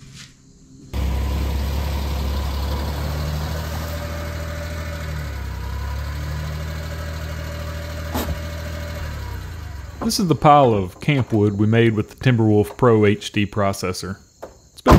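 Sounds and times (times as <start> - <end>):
small truck engine running: 0.9 - 12.8.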